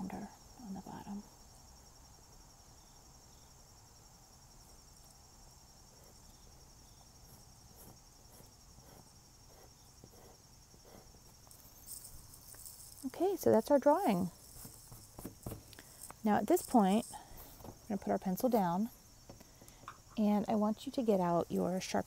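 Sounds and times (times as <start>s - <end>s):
brushing rustle: 7.2s - 19.0s
pencil drawing on paper: 7.3s - 11.2s.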